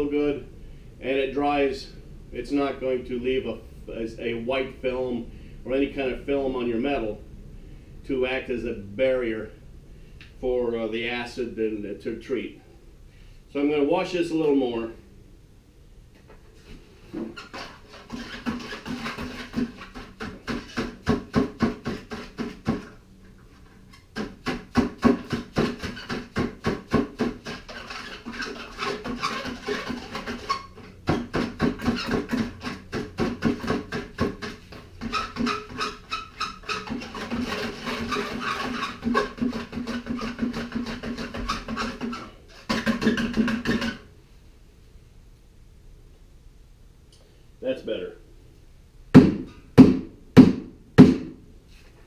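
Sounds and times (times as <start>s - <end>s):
scrubbing wire rope in liquid: 17.4s - 43.0s.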